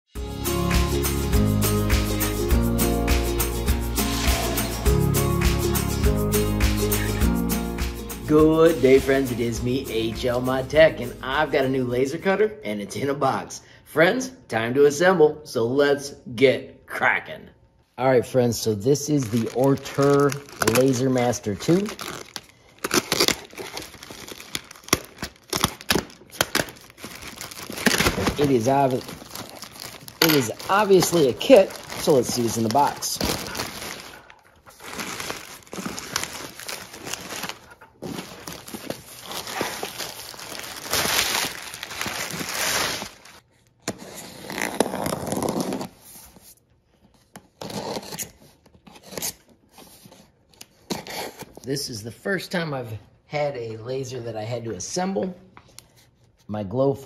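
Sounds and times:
plastic bag crinkling and tearing: 0:19.0 - 0:43.5
packing tape being cut: 0:19.4 - 0:46.1, 0:47.5 - 0:49.5.

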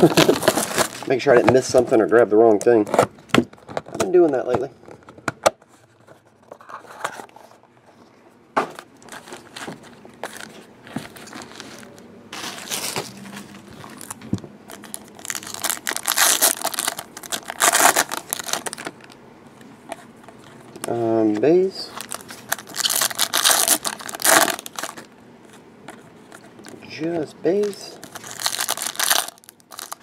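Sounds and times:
foil wrappers crinkling and tearing: 0:00.0 - 0:01.3, 0:09.0 - 0:19.2, 0:21.8 - 0:25.1, 0:27.6 - 0:30.0.

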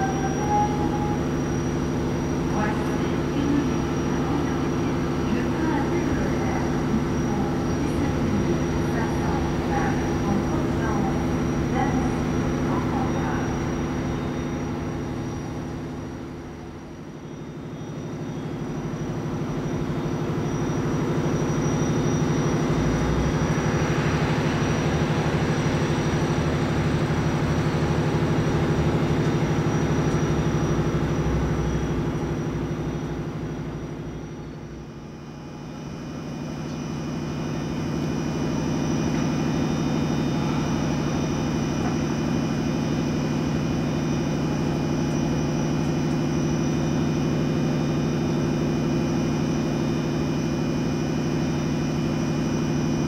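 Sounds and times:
thin high whine: 0:00.0 - 0:16.4
locomotive fans humming: 0:00.0 - 0:53.0.

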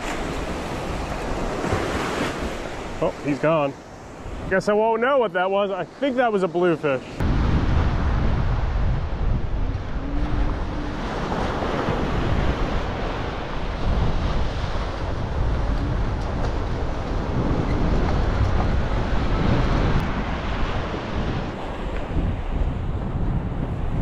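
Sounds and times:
breaking surf: 0:00.0 - 0:24.0
wind buffeting microphone: 0:07.2 - 0:24.0.

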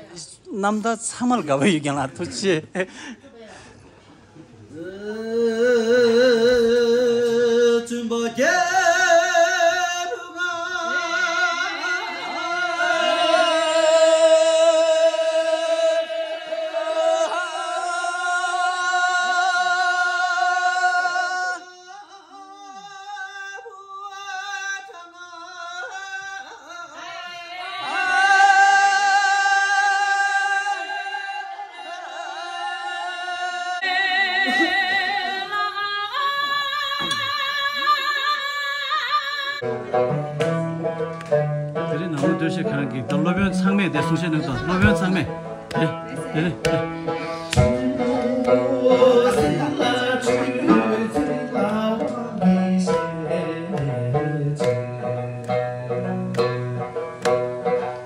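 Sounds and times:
man singing solo: 0:04.8 - 0:11.6, 0:47.6 - 0:57.5.

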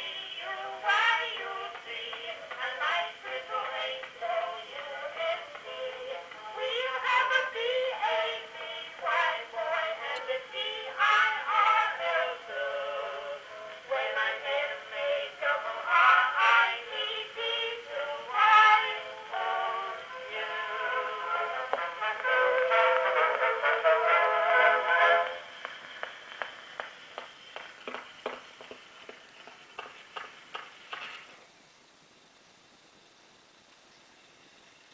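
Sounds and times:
male and female vocal duet: 0:00.0 - 0:24.3.

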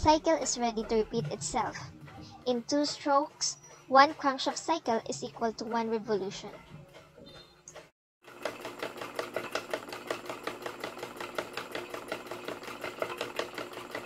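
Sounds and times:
model engine parts clicking rapidly: 0:08.3 - 0:14.0.

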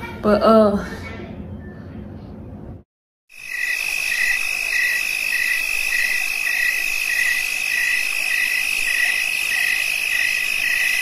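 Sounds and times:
steady high electronic tone: 0:03.3 - 0:11.0.

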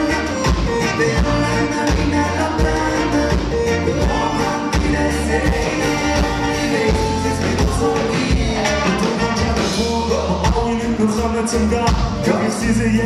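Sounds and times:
horn section with trumpet: 0:00.0 - 0:10.0
drum beat with heavy bass: 0:00.0 - 0:13.0.

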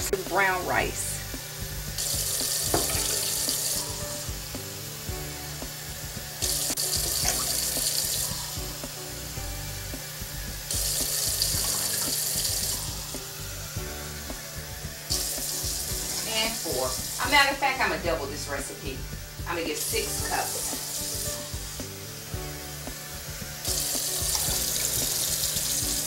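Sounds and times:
tap running water: 0:00.0 - 0:26.0
water splashing into saucepan: 0:02.0 - 0:04.1, 0:06.4 - 0:09.0, 0:10.7 - 0:13.2, 0:23.7 - 0:26.0.

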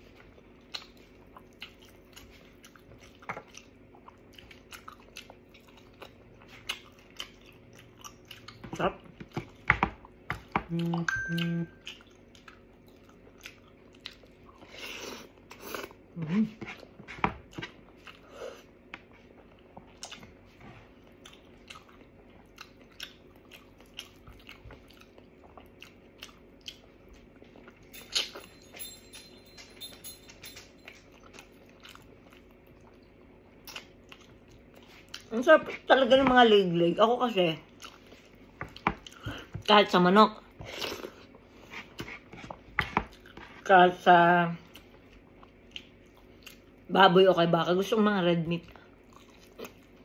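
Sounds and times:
chewing with wet mouth clicks: 0:00.1 - 0:14.7, 0:16.8 - 0:18.2, 0:18.9 - 0:20.4, 0:21.0 - 0:28.4, 0:30.8 - 0:35.3, 0:37.7 - 0:39.4, 0:44.6 - 0:46.9, 0:48.6 - 0:50.0.

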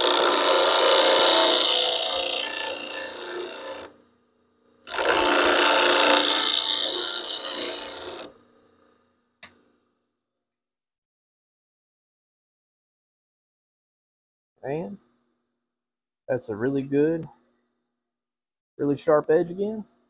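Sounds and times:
bench grinder grinding steel: 0:00.0 - 0:04.0, 0:04.8 - 0:08.4.

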